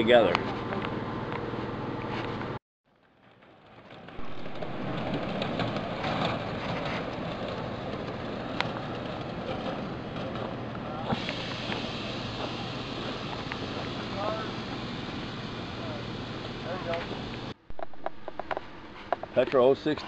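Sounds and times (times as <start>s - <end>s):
ride-on train rumbling on track: 3.6s - 17.6s.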